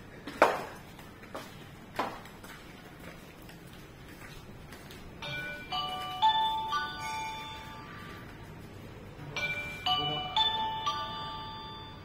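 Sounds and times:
footsteps on tiled floor: 0.0 - 9.3.

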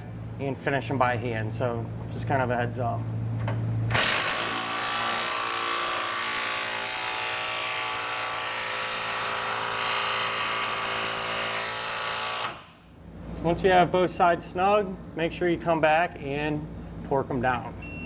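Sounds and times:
impact driver hammering: 3.9 - 12.8.

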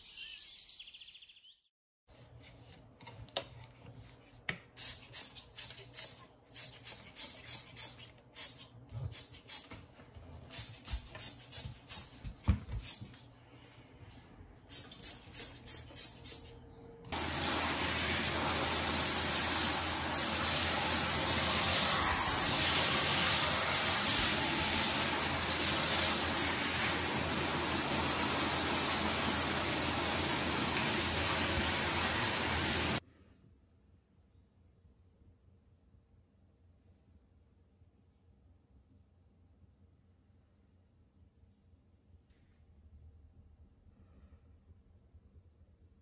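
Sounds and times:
shower spraying on tiled floor: 4.8 - 9.8, 10.5 - 13.1, 14.7 - 16.5, 17.1 - 33.0
trigger spray bottle squirting: 4.8 - 9.8, 10.5 - 12.2, 14.7 - 16.5.

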